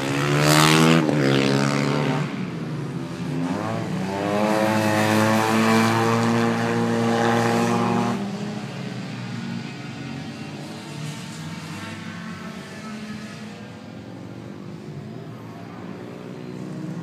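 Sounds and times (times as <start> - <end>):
motorcycle engine at high revs: 0.0 - 8.9.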